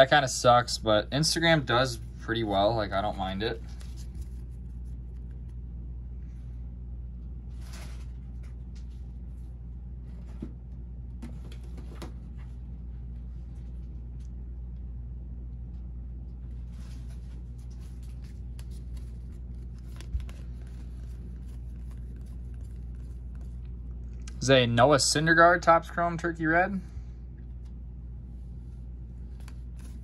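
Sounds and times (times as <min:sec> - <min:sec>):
steady low hum: 0:00.0 - 0:30.0
cards and wrappers rustling: 0:01.3 - 0:05.6, 0:16.5 - 0:24.2, 0:29.2 - 0:30.0.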